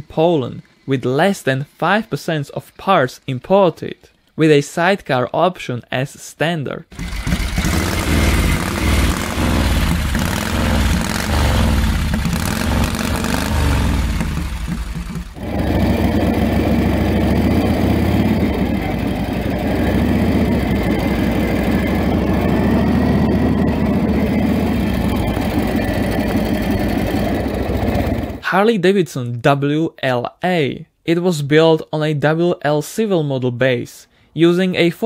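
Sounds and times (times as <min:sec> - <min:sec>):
motorcycle engine running: 0:06.9 - 0:28.4.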